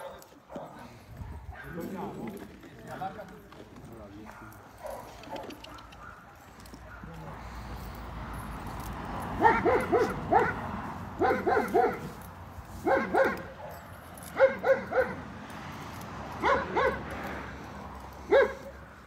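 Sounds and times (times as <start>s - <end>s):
dog barking: 0.0s - 1.9s, 4.3s - 7.4s, 9.4s - 12.2s, 12.8s - 15.3s, 16.4s - 17.1s, 18.2s - 18.8s.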